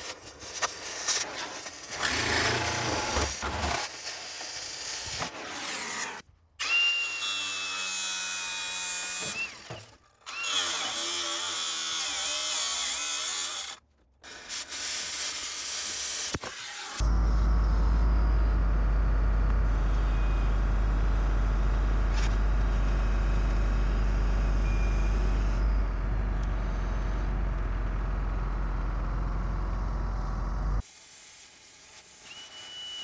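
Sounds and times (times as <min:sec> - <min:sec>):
power tools working on metal: 0:01.8 - 0:18.0
steady high whine: 0:17.0 - 0:30.8.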